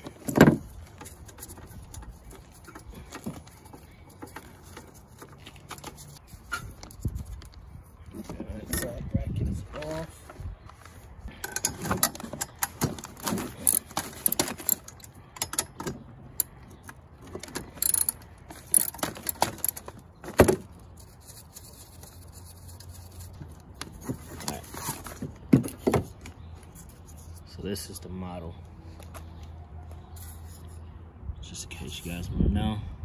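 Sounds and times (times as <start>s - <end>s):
metal parts clinking: 11.3s - 20.0s
socket ratchet clicking: 17.8s - 19.8s.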